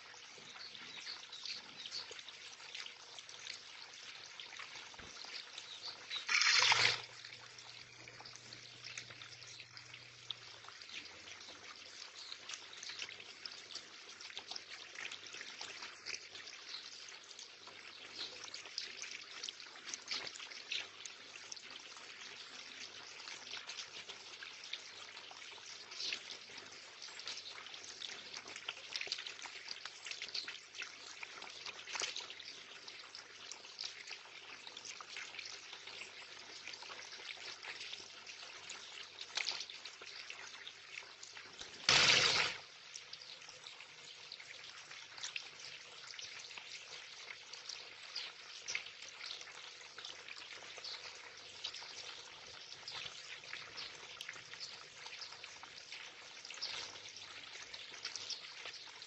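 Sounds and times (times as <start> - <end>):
water trickling into pond: 0.0 - 59.0
bird splashing in water: 6.2 - 7.2, 41.9 - 42.6.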